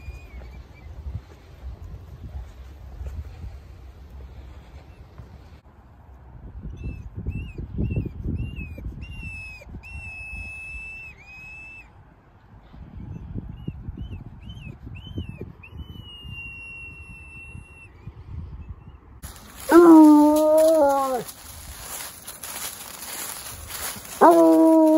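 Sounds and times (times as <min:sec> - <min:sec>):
dog baying: 0:19.3 - 0:21.6, 0:23.8 - 0:24.9
dog whining: 0:19.4 - 0:21.4, 0:24.1 - 0:24.9.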